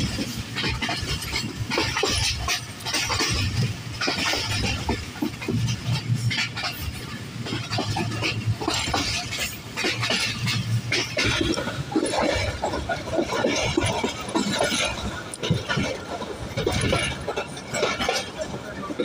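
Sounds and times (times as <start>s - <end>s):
train wheels rumbling: 0.0s - 19.0s.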